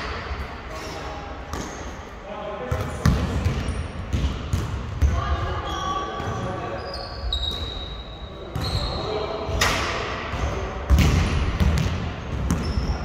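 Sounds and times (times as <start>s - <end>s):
voices echoing in hall: 0.0s - 13.0s
sneakers squeaking on court: 2.7s - 9.6s, 10.3s - 13.0s.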